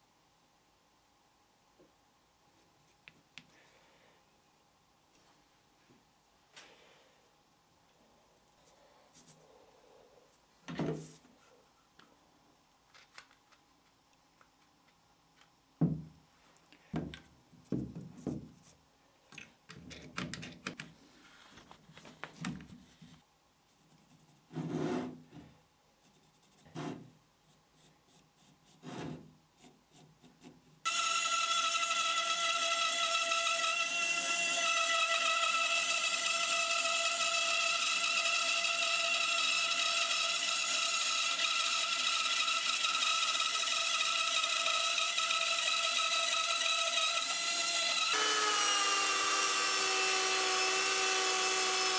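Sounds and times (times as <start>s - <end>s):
band saw whining: 30.9s - 51.9s.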